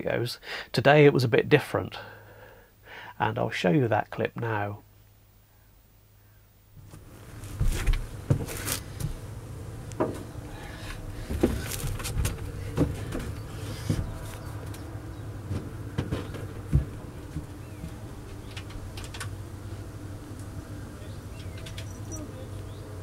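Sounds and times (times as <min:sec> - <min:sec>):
steady low hum: 0:04.4 - 0:23.0
footsteps on boat deck: 0:06.8 - 0:09.3, 0:10.0 - 0:19.0.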